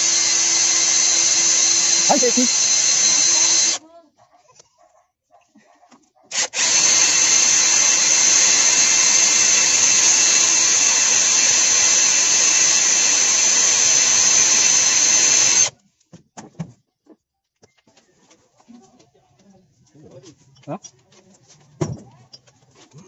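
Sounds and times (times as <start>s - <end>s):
cordless drill whining: 0.0s - 3.8s, 6.3s - 15.8s.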